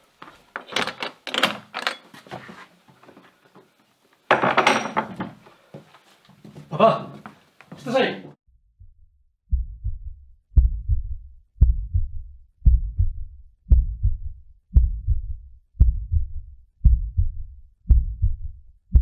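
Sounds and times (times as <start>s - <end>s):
heavy heartbeat-like thumps: 8.7s - 19.0s.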